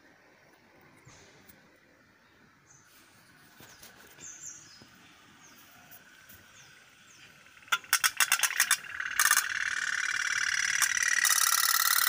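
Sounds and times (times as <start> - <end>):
toy steam boat engine putter: 7.6 - 12.0.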